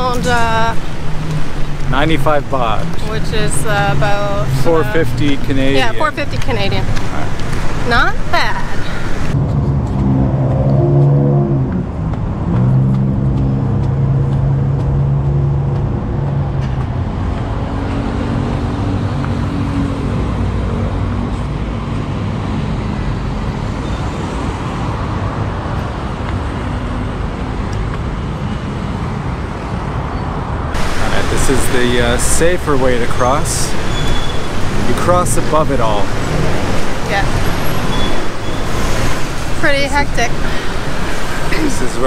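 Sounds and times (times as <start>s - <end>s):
low engine hum: 0.0s - 22.2s, 30.8s - 42.0s
road noise: 0.0s - 42.0s
vehicle engines passing: 0.0s - 42.0s.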